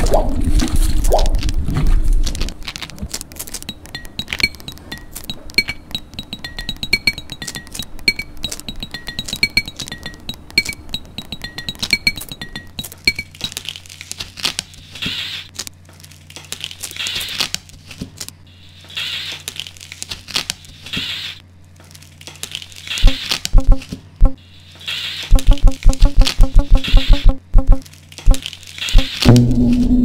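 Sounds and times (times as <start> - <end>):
crinkling rustling noise: 0.0 - 5.6, 12.8 - 25.4, 27.8 - 29.9
low steady hum: 0.0 - 30.0.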